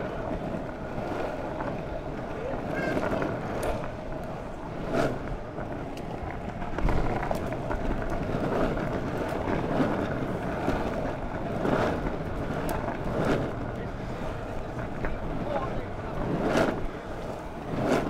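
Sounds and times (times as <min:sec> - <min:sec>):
skateboard wheels rolling on asphalt: 0:00.0 - 0:18.0
wheels knocking over bumps: 0:00.0 - 0:18.0
wind on microphone: 0:00.0 - 0:18.0.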